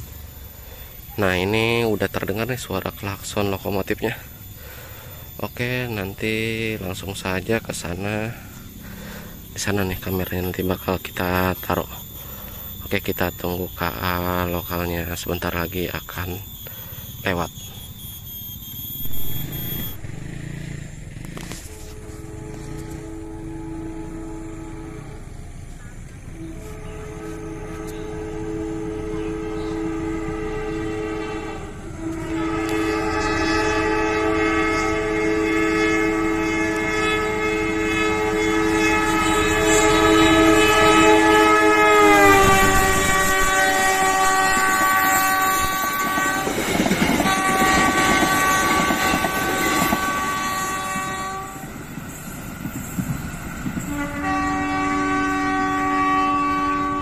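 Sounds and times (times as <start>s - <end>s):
locomotive horn: 0.0s - 51.9s, 53.7s - 57.0s
train wheels clattering over rails: 45.6s - 54.0s.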